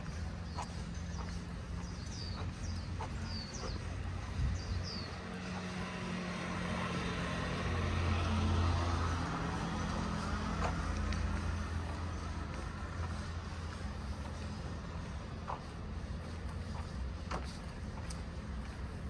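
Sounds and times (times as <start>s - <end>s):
bird chirps: 0.0s - 4.0s
vehicle passing: 0.0s - 19.0s
footstep taps: 10.4s - 19.0s.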